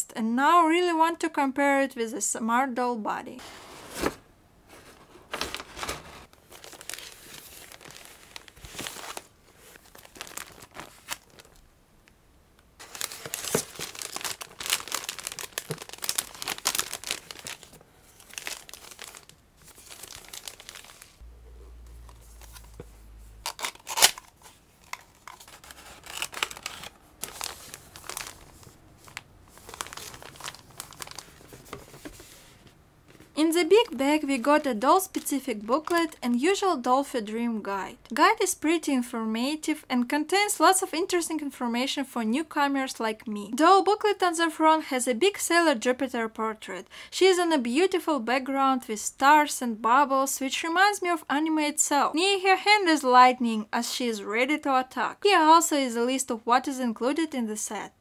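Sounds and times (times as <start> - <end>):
plastic bags crinkling: 5.2 - 11.7, 12.8 - 21.2, 22.0 - 32.2, 33.8 - 36.2.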